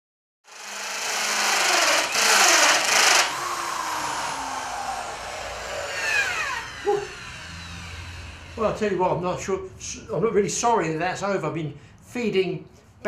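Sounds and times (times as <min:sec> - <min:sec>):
electric drill cutting wood: 0:00.5 - 0:09.6.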